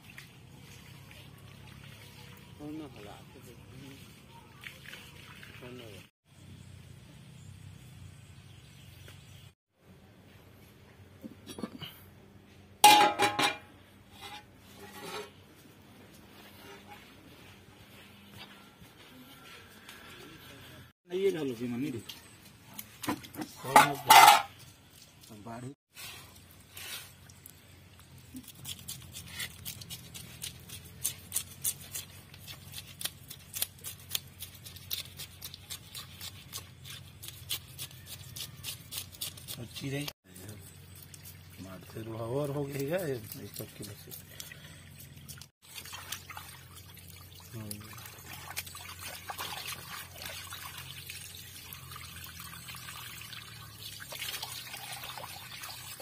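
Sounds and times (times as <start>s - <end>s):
metal blade clanging on steel plate: 12.8s - 13.7s
metal knocks and scrapes: 12.8s - 15.4s, 23.1s - 24.6s.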